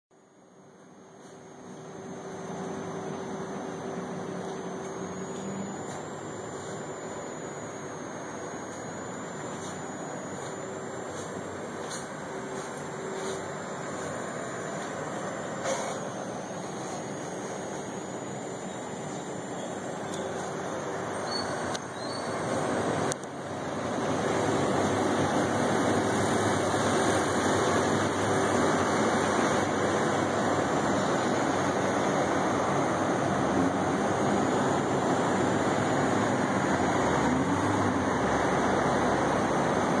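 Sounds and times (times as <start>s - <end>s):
distant city traffic hum: 9.6s - 40.0s.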